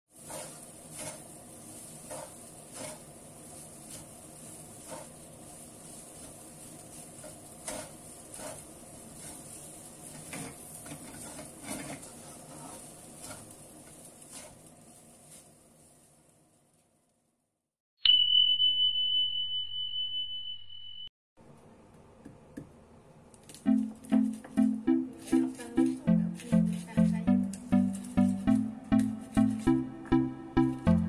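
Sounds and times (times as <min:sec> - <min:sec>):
spatula scraping and knocking pan: 0:00.1 - 0:14.9
cabbage sizzling in a pan: 0:00.1 - 0:16.6.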